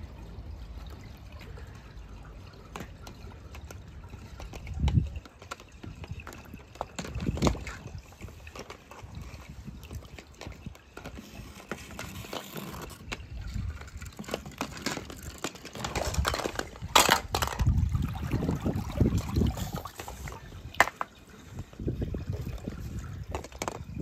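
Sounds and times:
pool water sloshing and splashing: 0:00.0 - 0:24.0
net swishing through water: 0:10.6 - 0:16.2.

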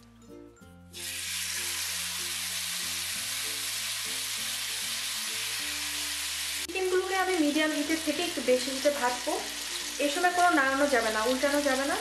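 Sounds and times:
light background music: 0:00.0 - 0:12.0
meat sizzling in a pan: 0:01.0 - 0:12.0.

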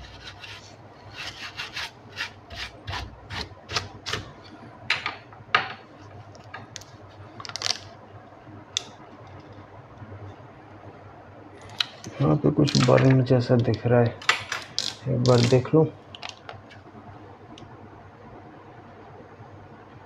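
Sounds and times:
brush scrubbing: 0:00.0 - 0:03.5.

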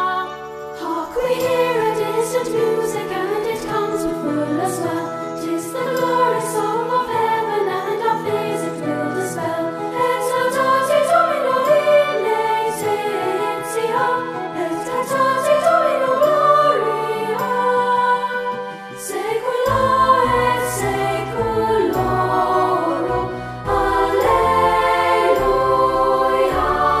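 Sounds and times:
choir singing hymn-like piece: 0:00.0 - 0:27.0.

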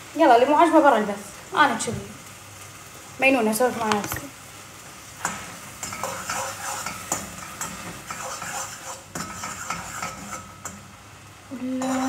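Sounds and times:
food sizzling: 0:00.0 - 0:12.0
utensil scraping a pan: 0:05.2 - 0:10.8.

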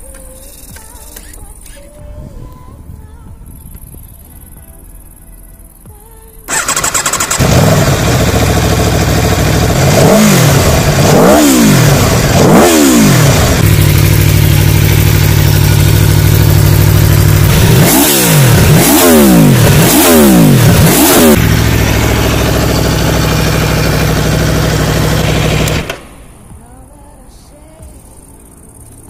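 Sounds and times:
motorcycle engine idling and revving: 0:05.8 - 0:29.0.

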